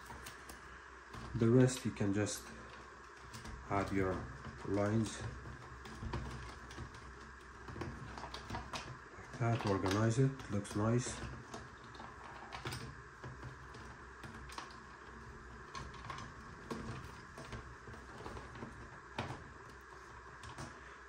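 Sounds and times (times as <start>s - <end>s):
wires rustling: 0.0s - 21.0s.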